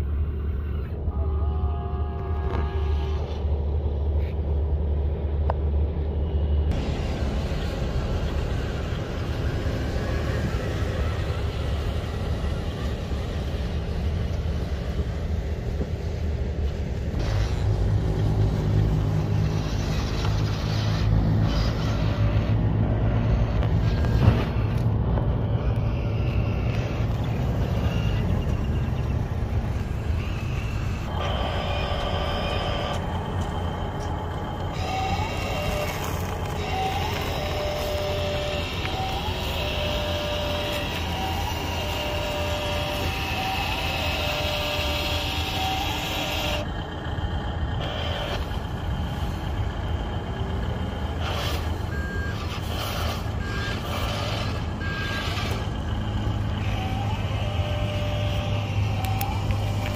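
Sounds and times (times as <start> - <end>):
reversing alarm beeping: 25.6 - 46.8, 51.6 - 59.9.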